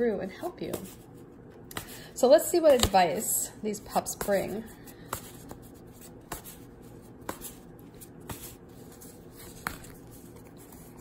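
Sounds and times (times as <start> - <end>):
cards tapping: 9.3 - 11.0.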